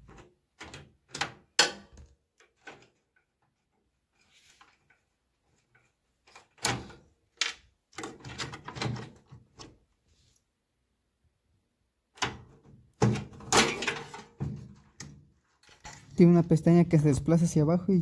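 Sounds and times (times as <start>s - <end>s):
parts clattering in metal cabinet: 12.2s - 16.1s.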